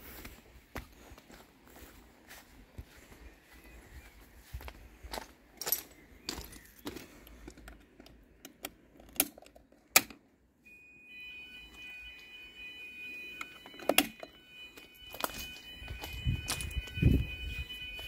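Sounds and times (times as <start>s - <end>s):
footsteps: 0.0s - 7.6s, 14.7s - 18.0s
high-pitched fire alarm tone: 10.6s - 18.0s.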